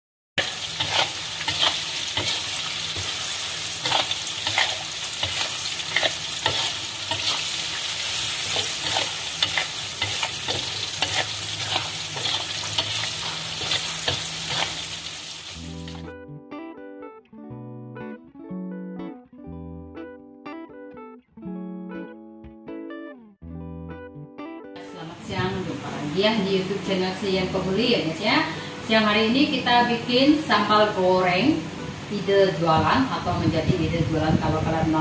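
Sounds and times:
spatula scraping and knocking pan: 0.4 - 14.9
food sizzling in hot oil: 0.4 - 16.1
plucked guitar music: 15.6 - 28.8.

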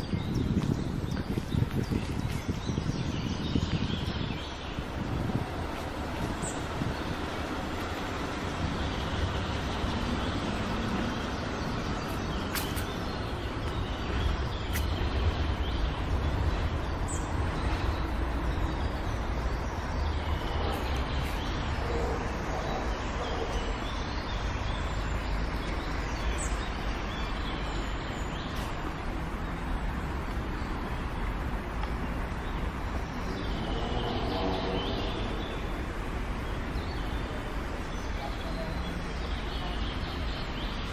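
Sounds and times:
distant traffic rumble: 0.0 - 40.9.

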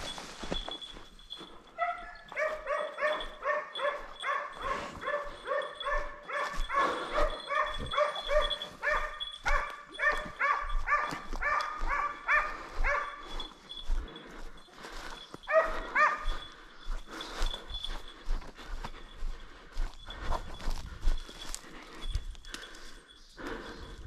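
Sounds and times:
hound barking: 1.6 - 13.6, 15.4 - 16.7.

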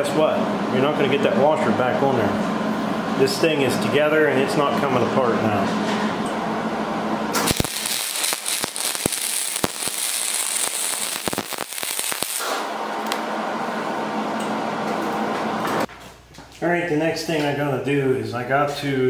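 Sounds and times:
welder crackling with pops: 7.3 - 13.3.

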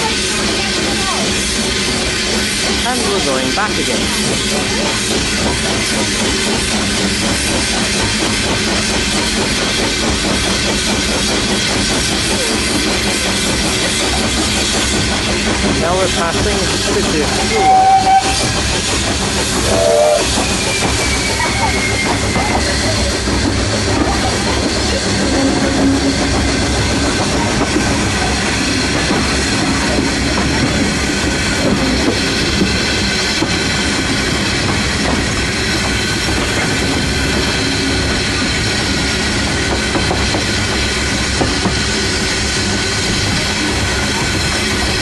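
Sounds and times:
steam locomotive rattle and wheel noise: 0.0 - 45.0.

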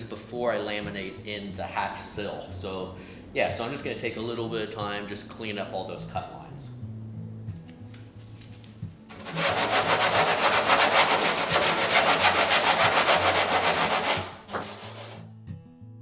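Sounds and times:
sanding block rubbing wood: 9.1 - 15.2.

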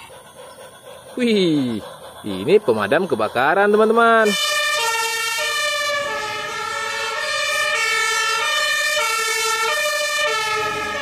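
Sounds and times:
fire engine two-tone siren: 2.9 - 11.0.

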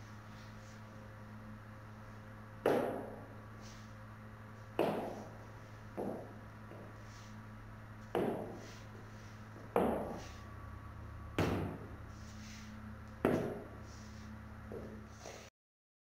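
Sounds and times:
faint steady hum: 0.0 - 15.5
heeled shoes striking wooden floor: 6.0 - 6.9, 8.1 - 8.6, 9.7 - 10.2, 13.2 - 13.8.

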